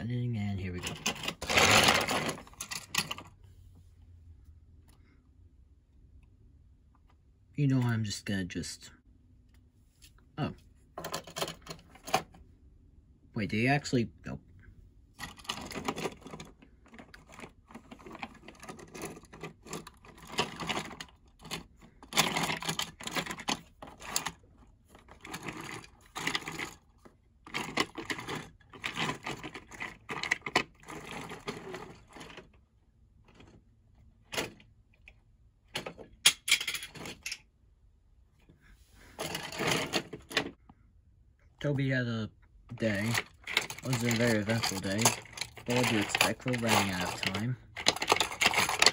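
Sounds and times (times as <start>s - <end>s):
plastic toy trains clicking and rattling: 0.6s - 3.4s, 11.0s - 12.4s, 15.2s - 32.6s, 39.2s - 40.6s, 42.7s - 48.9s.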